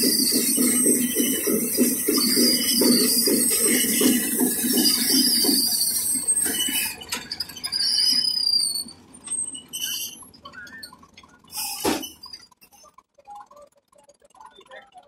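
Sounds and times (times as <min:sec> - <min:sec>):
machine rattling: 0:00.0 - 0:08.3
high metallic squeals: 0:00.0 - 0:13.0.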